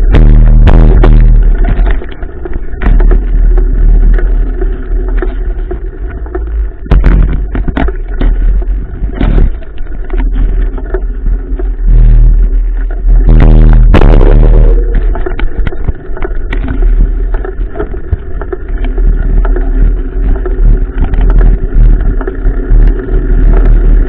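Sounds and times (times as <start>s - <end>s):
bike clattering over bumps: 0.0s - 11.0s
wind rumble on microphone: 0.0s - 24.0s.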